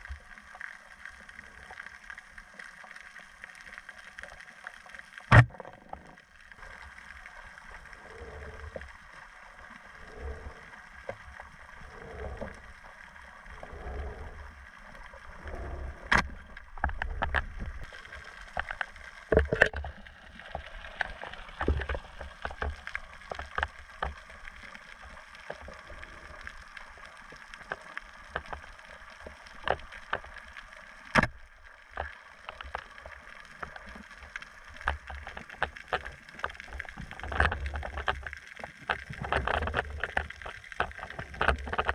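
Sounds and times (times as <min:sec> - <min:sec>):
water swishing underwater: 0:00.0 - 0:41.9
speargun firing underwater: 0:05.3 - 0:05.6
sharp clicks and knocks: 0:05.3 - 0:05.7, 0:18.5 - 0:20.0, 0:31.1 - 0:31.4.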